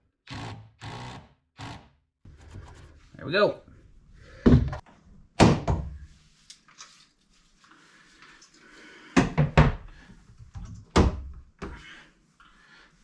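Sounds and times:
wooden knocks and thuds: 4.4 - 6.0, 9.2 - 9.8.

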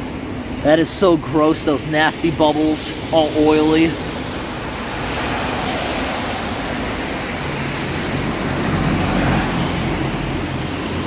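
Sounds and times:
heavy rain: 0.0 - 11.0
vehicle passing on wet road: 3.9 - 11.0.

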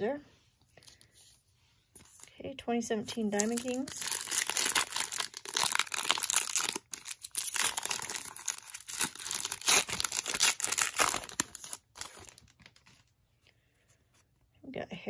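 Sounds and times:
foil wrapper crinkling and tearing: 3.2 - 13.1.

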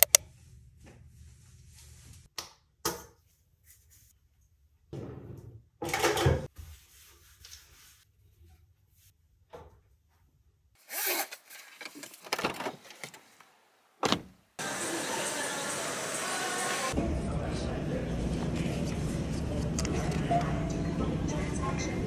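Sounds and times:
handling noises rubbing and rustling: 6.5 - 9.2, 10.8 - 14.4.

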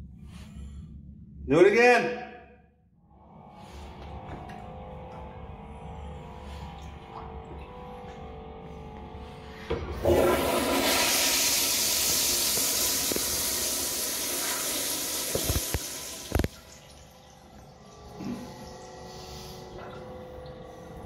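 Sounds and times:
toilet flush rush of water: 9.9 - 21.0.

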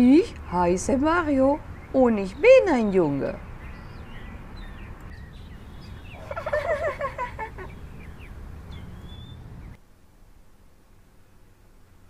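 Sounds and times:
small birds chirping: 0.0 - 9.8
rapid warbling gobble call: 5.8 - 8.3.

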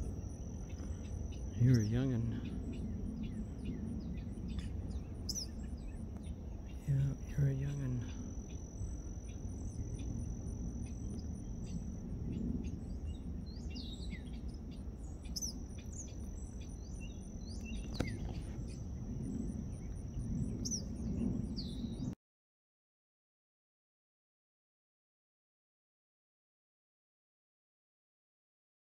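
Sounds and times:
birds chirping: 0.0 - 22.2
insect chirping in pulses: 0.0 - 22.2
low rumble: 0.0 - 22.2.

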